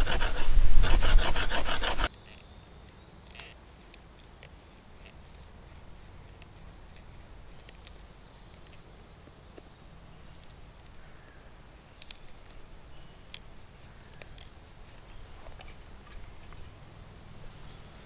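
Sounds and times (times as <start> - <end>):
knife scraping bark off stick: 0.0 - 2.1.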